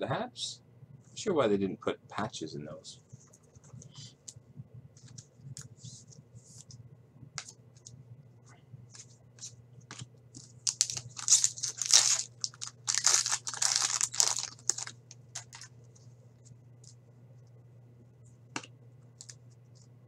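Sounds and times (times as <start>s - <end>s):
foil pack tearing and crinkling: 10.6s - 15.7s.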